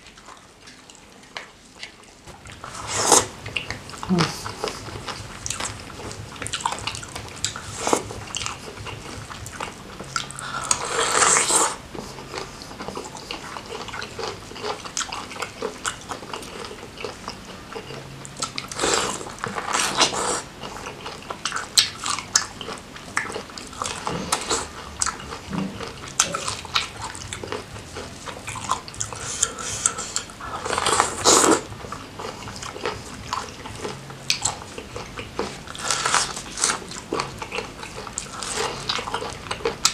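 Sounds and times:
chewing crab and prawns: 0:00.0 - 0:39.9
wet eating noise: 0:00.0 - 0:39.9.

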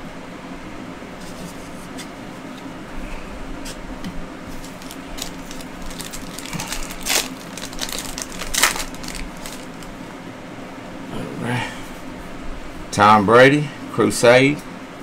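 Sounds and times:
foil wrappers crinkling: 0:04.5 - 0:10.0.

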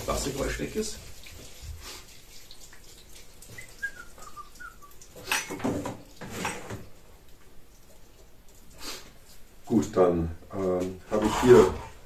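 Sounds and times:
vacuum hose and attachments clattering: 0:05.2 - 0:06.9.

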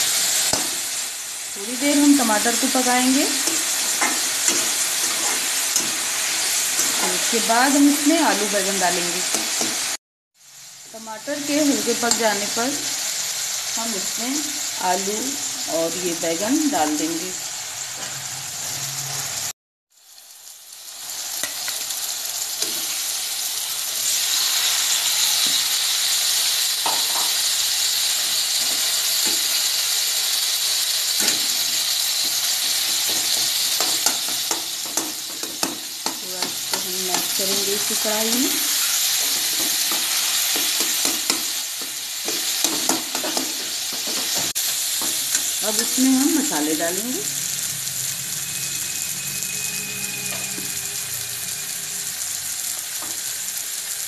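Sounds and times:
food sizzling in oil: 0:00.0 - 0:54.0
metal spatula scraping pan: 0:03.3 - 0:07.4, 0:30.6 - 0:45.9.

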